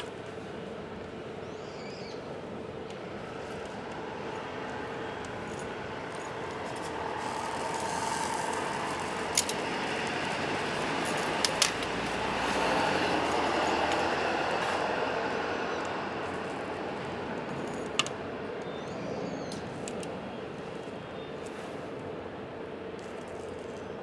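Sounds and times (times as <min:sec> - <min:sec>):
steady rushing noise: 0:02.2 - 0:24.0
wood fire burning in stove: 0:02.4 - 0:18.7.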